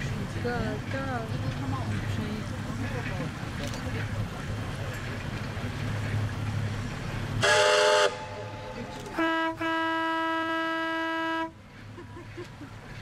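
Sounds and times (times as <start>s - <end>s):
steam locomotive whistle blasts: 7.4s - 8.5s, 9.2s - 11.6s.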